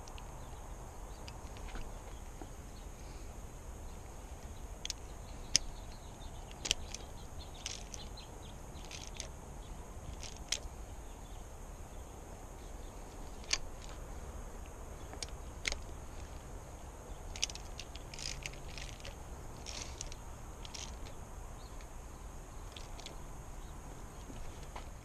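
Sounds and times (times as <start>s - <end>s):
faint high ticks: 0.0s - 0.4s.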